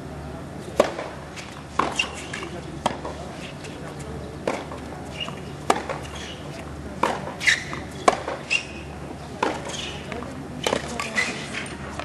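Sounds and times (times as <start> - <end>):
tennis ball pops: 0.8 - 1.2, 1.8 - 3.2, 4.4 - 6.3, 7.0 - 8.8.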